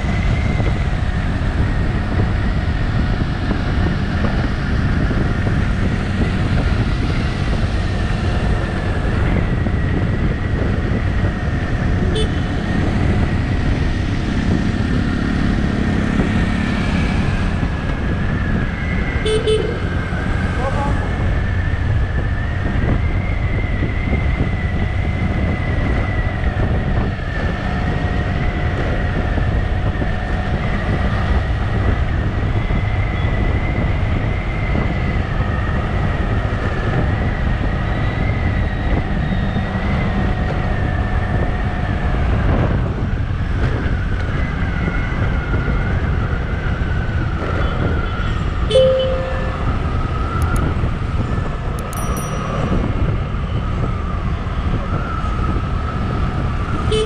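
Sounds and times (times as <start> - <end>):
motorcycle cruising: 0.0 - 57.0
road and wind rumble: 0.0 - 57.0
horn beep: 48.7 - 50.0
high whine: 48.7 - 50.7.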